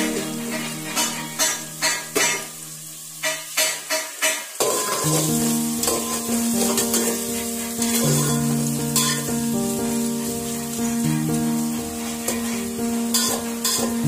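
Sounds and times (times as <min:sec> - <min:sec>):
metal spatula stirring: 0:00.0 - 0:09.4, 0:11.6 - 0:14.0
onions sizzling in oil: 0:00.0 - 0:14.0
soft background music: 0:04.9 - 0:14.0.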